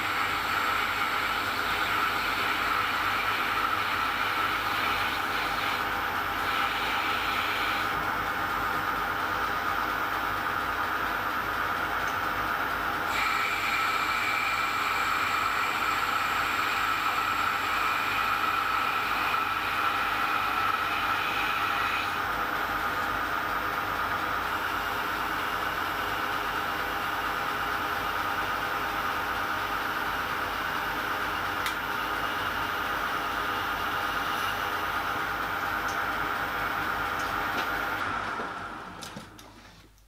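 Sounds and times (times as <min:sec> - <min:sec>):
metal lathe humming: 0:00.0 - 0:39.5
high cutting whine: 0:13.0 - 0:23.4.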